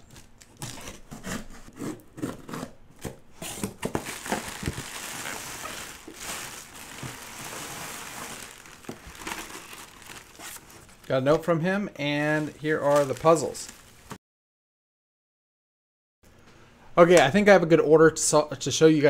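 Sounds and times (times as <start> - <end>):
cardboard box being cut open: 0.5 - 7.5
plastic packing crinkling: 3.4 - 11.4, 12.2 - 14.2.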